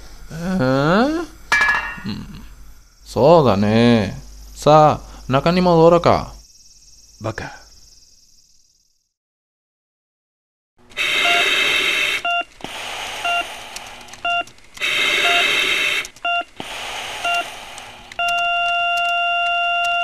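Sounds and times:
respirator hissing: 0.0s - 9.1s, 10.9s - 18.3s
heart monitor beeping: 11.0s - 20.0s
heart monitor continuous tone: 11.0s - 20.0s.

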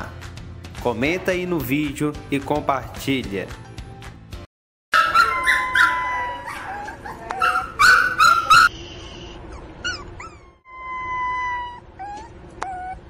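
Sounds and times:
puppy yelping: 5.0s - 8.7s, 9.3s - 13.0s
puppy whimpering and whining: 5.2s - 8.7s, 9.3s - 13.0s.

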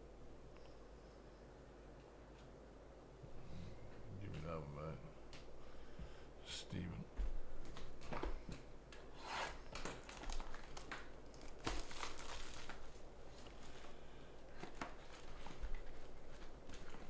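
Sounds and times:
plastic and foil packaging rustling: 9.3s - 17.0s.

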